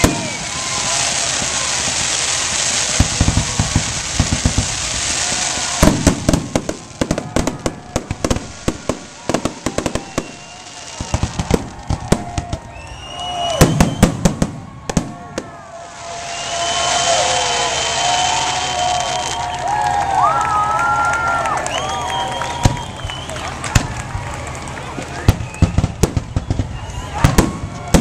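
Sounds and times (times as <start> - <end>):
firework rushing hiss: 0.0 - 14.6
rising firework whistles: 0.0 - 24.0, 25.1 - 28.0
firework bangs and crackles: 0.0 - 28.0.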